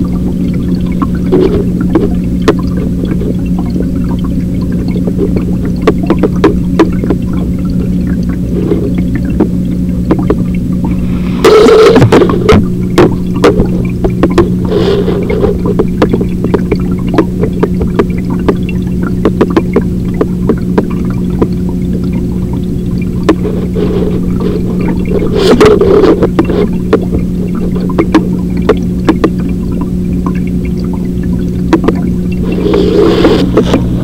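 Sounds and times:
aquarium pump humming: 0.0 - 34.0
sharp clicks and crackles: 0.4 - 34.0
rushing noise bursts: 10.9 - 12.6, 31.8 - 34.0.

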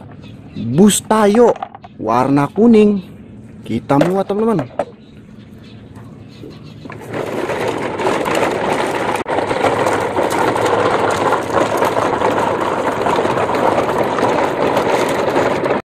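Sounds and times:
plastic toy trucks rattling over dirt: 0.8 - 2.9, 3.8 - 5.0, 6.4 - 15.8.

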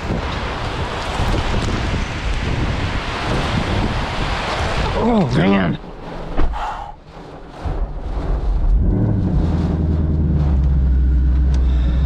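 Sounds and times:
car engine starting and idling: 8.7 - 12.0.

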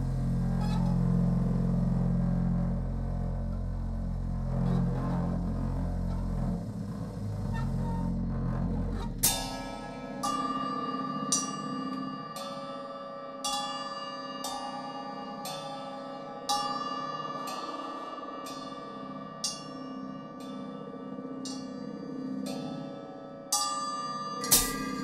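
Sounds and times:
low steady drone: 0.0 - 12.8, 24.3 - 25.0
struck metal percussion ringing: 9.2 - 25.0.

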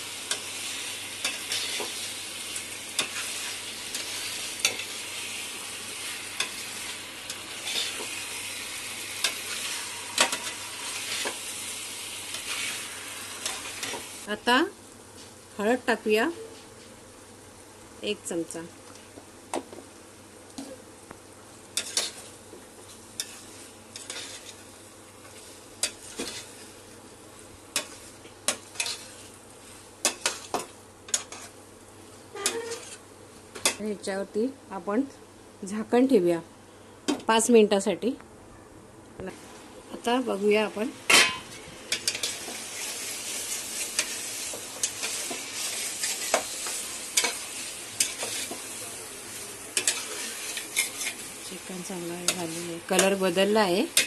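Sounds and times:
faint sizzling: 0.0 - 38.3, 39.0 - 54.0
metal spatula scraping a pot: 21.8 - 22.2, 23.2 - 24.6, 25.8 - 26.7, 27.8 - 29.2, 31.1 - 31.5, 32.4 - 33.0, 49.3 - 51.3
utensil scraping a metal pot: 32.4 - 33.0, 49.8 - 51.2.

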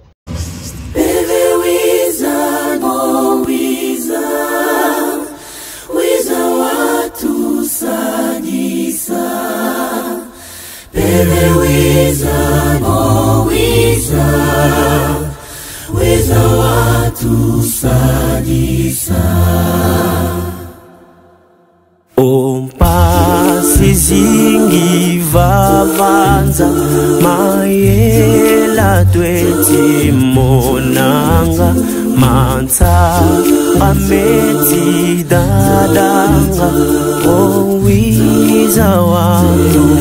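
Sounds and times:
choir singing: 0.9 - 40.0
deep bass voices: 10.9 - 20.8, 22.8 - 40.0.

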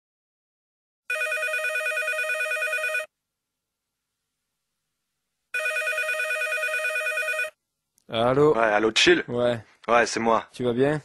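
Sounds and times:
electronic telephone ringer warbling: 1.1 - 3.1, 5.6 - 7.6.

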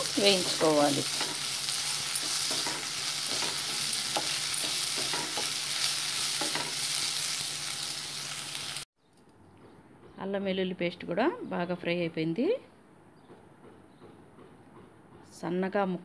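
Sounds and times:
onions sizzling in hot oil: 0.0 - 8.9.

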